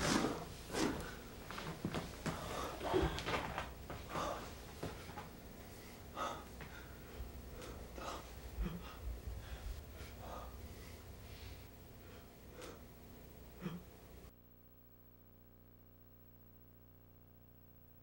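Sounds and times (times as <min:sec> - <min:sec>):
person sniffing and gasping: 0:00.0 - 0:01.3, 0:05.8 - 0:12.9
person breathing unevenly: 0:00.0 - 0:14.0.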